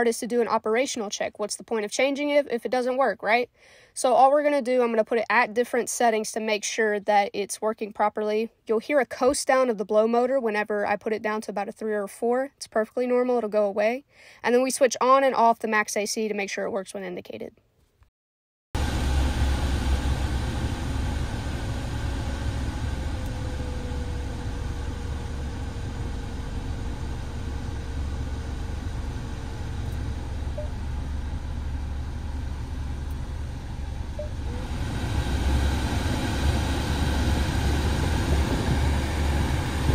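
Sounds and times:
air rushing from vents: 18.8s - 39.9s
faint falling blower tone: 18.8s - 39.9s.

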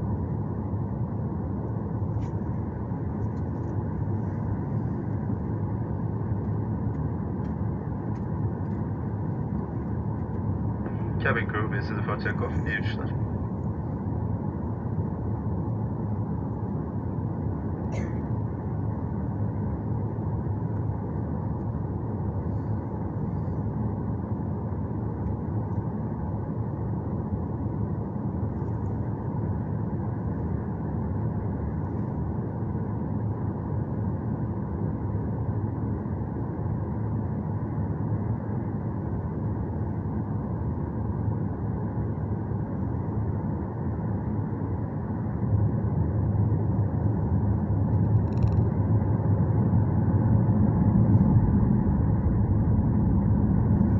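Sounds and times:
jet engines idling in cabin: 0.0s - 53.9s.

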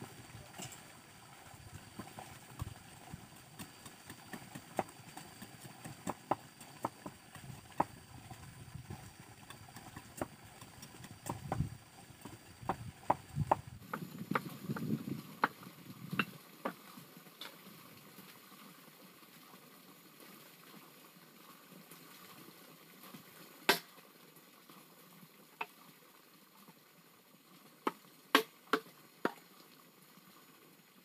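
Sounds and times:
faint steady hiss: 0.0s - 31.0s
stick knocking on bamboo pole: 11.2s - 15.6s, 27.9s - 29.4s.

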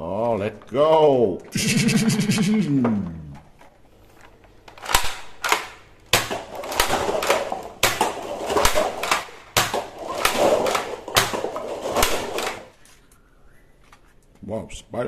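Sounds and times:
toy dart blaster shots: 4.8s - 12.7s
paper cups clattering: 6.2s - 13.0s.

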